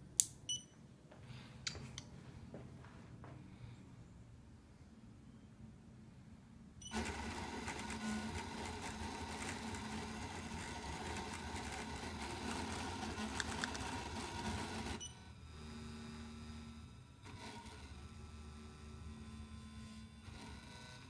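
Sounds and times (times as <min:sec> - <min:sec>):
scattered clicks: 0:13.3 - 0:13.9.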